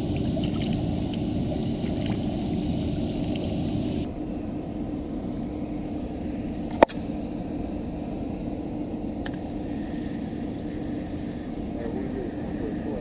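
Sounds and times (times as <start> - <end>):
water rushing through weir: 0.0 - 4.1
low hum: 0.0 - 13.0.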